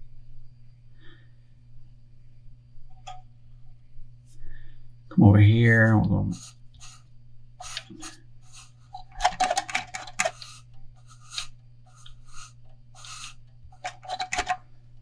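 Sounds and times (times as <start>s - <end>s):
hands rubbing thread: 6.3s - 7.0s, 7.6s - 8.9s, 9.5s - 14.5s.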